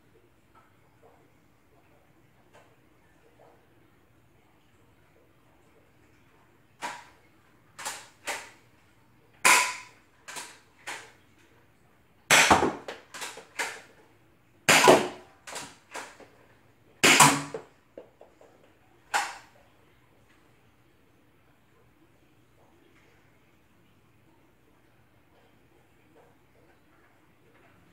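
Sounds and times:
toy blaster shots clacking: 0:07.8 - 0:08.5, 0:09.5 - 0:11.0, 0:12.3 - 0:13.9, 0:14.7 - 0:16.2, 0:17.0 - 0:17.6, 0:19.1 - 0:19.4
reloading clicks: 0:07.8 - 0:08.6, 0:09.5 - 0:11.1, 0:12.3 - 0:13.9, 0:14.7 - 0:16.2.

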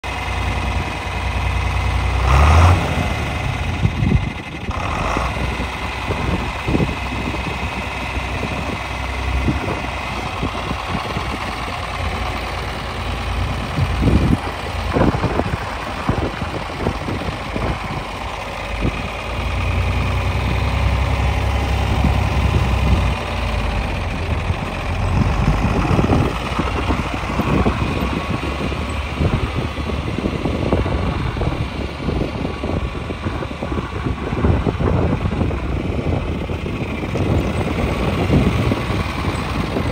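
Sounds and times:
tractor engine idling: 0:00.0 - 0:39.9.

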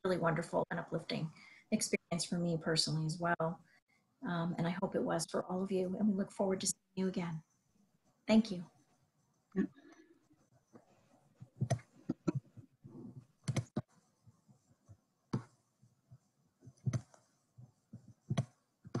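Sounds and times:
computer mouse clicks: 0:13.2 - 0:13.9, 0:16.8 - 0:17.3, 0:18.3 - 0:19.0.

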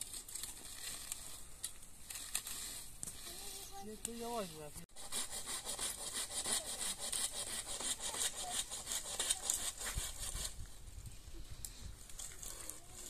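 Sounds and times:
hand saw cutting wood: 0:04.9 - 0:10.6.

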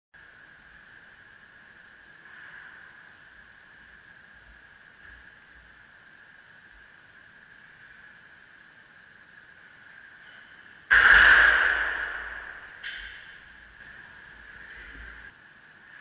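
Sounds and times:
faint high-pitched hum: 0:00.2 - 0:16.0
barbell clanging on metal rack: 0:10.4 - 0:13.5.

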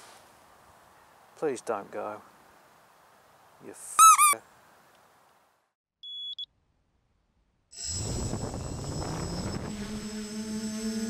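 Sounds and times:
short electronic beep: 0:06.0 - 0:06.5.

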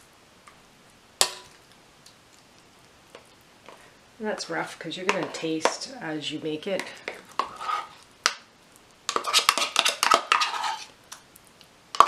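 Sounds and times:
spoon scraping cup: 0:06.8 - 0:08.0, 0:09.1 - 0:10.9.

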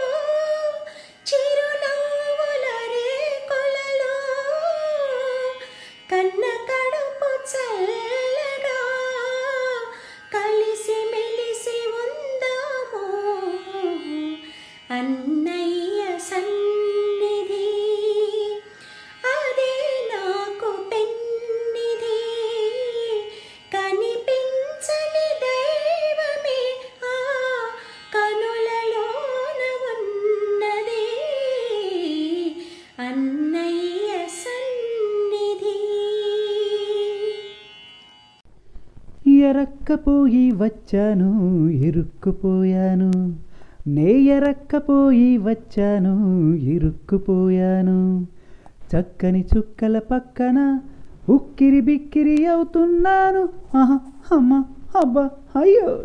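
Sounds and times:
woman singing slow song: 0:00.0 - 0:18.6, 0:19.2 - 0:37.5, 0:39.2 - 0:56.0
singer breathing: 0:00.9 - 0:01.2, 0:05.6 - 0:06.1, 0:09.9 - 0:10.3, 0:14.4 - 0:14.9, 0:18.6 - 0:19.2, 0:23.3 - 0:23.7, 0:32.6 - 0:33.0, 0:43.4 - 0:43.9, 0:48.3 - 0:48.9, 0:50.8 - 0:51.3.

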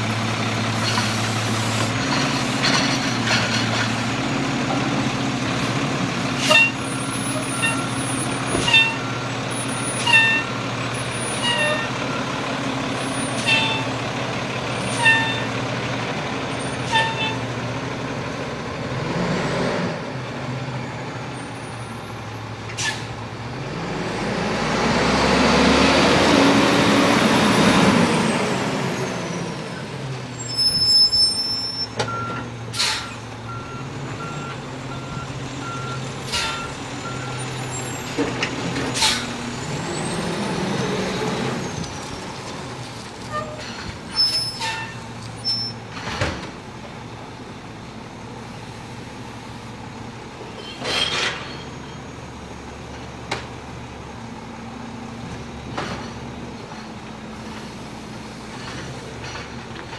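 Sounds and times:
garbage truck diesel engine: 0:00.0 - 0:59.9
air brake hissing: 0:22.7 - 0:23.2, 0:32.7 - 0:33.2, 0:39.0 - 0:39.4.

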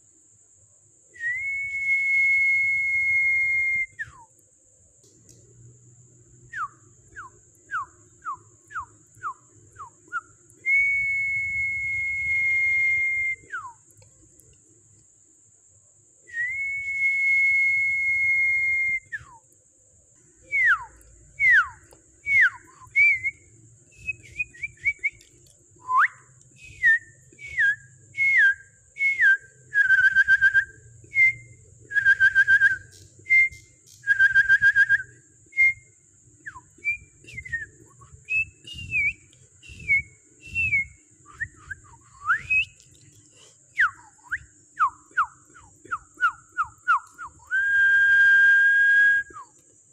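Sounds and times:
buzzy trilled whistle notes: 0:01.2 - 0:04.2, 0:06.5 - 0:13.8, 0:16.3 - 0:19.4, 0:36.5 - 0:42.8
person whistling: 0:01.2 - 0:04.3, 0:06.5 - 0:13.8, 0:16.3 - 0:19.4, 0:20.4 - 0:35.9, 0:36.5 - 0:42.8, 0:43.8 - 0:49.5.

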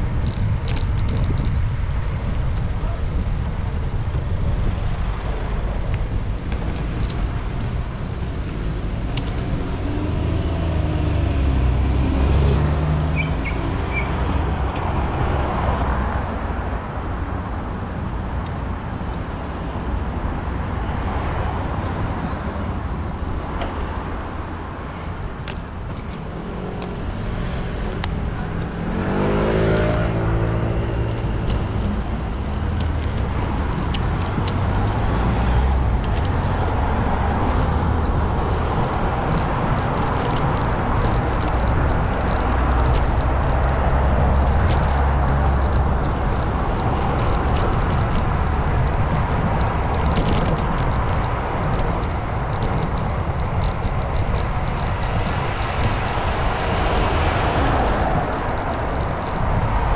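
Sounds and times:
cars passing rumble: 0:00.0 - 0:59.9
vehicle accelerating nearby: 0:05.2 - 0:15.8, 0:26.0 - 0:59.9.

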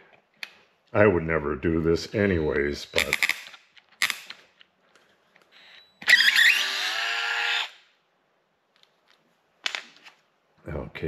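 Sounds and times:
cordless screwdriver motor whine: 0:05.6 - 0:07.8.

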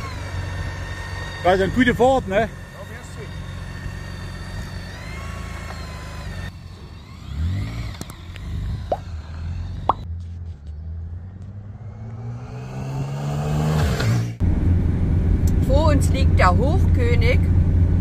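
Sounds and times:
motorcycle engine idling and revving: 0:00.0 - 0:18.0.

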